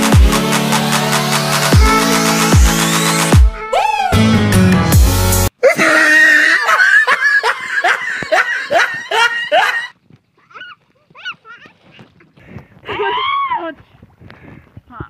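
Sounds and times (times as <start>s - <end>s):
person laughing hard: 5.6s - 11.8s.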